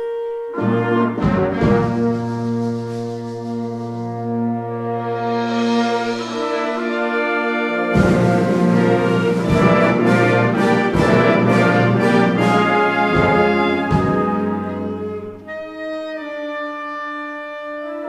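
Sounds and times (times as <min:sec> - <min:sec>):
wind band playing: 0:00.0 - 0:18.0.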